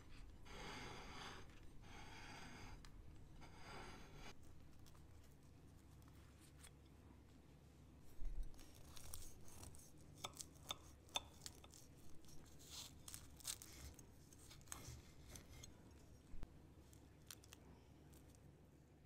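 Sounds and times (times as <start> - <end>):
knife sawing crisp pastry: 3.4 - 4.4, 8.6 - 15.8.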